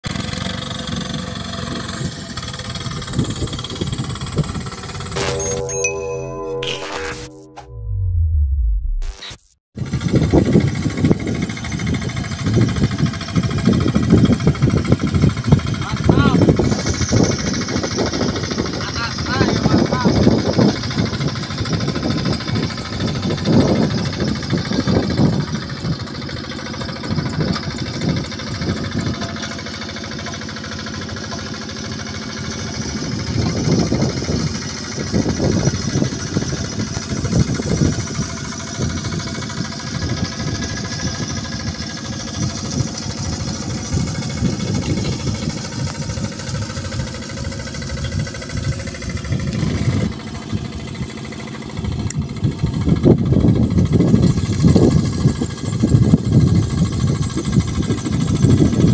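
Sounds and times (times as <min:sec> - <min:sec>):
diesel engine running under load: 0:00.0 - 0:09.2, 0:09.8 - 0:58.9.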